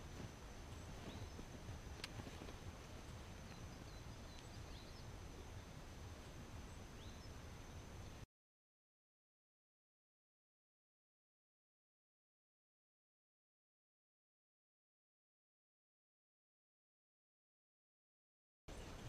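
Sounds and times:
faint bird chirps: 0.5s - 1.6s, 2.9s - 8.2s.

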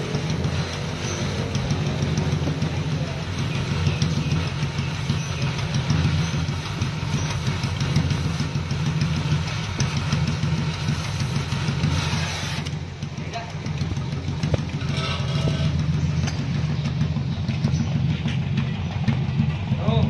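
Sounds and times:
cutting torch hissing and crackling: 0.0s - 12.8s.

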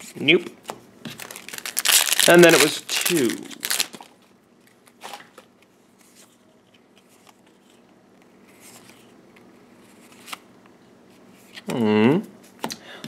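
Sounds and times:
trading cards clicking and rustling: 1.1s - 4.1s.

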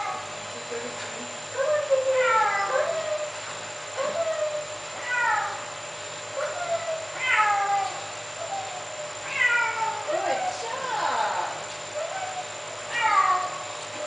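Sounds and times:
kitten meowing: 6.4s - 10.5s.

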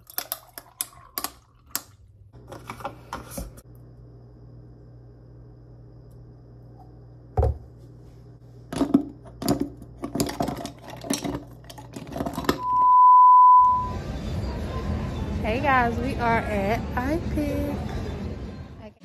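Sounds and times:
electronic beep: 12.6s - 14.0s.

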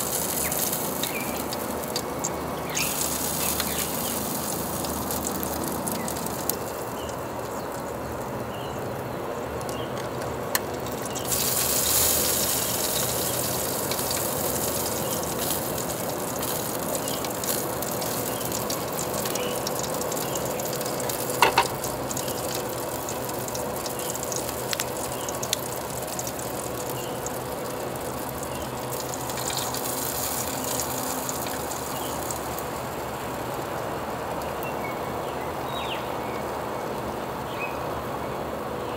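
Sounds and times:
meat sizzling on grill: 0.0s - 8.9s, 9.6s - 37.5s
fat popping: 21.3s - 22.0s.

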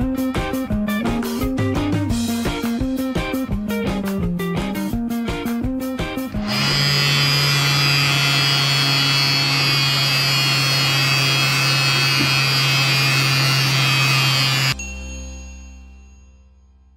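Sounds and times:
small vacuum motor humming: 6.4s - 14.8s.

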